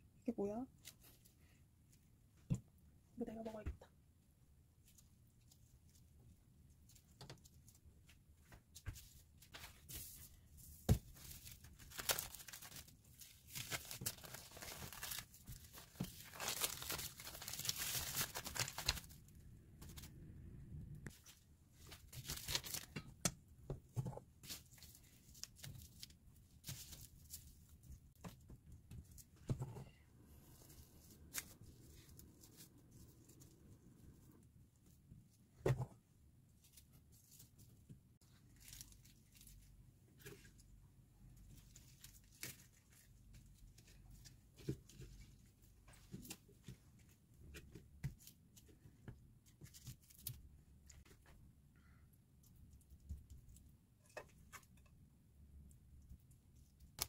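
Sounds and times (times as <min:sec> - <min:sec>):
dried seaweed sheet crinkling: 0:11.2 - 0:19.2.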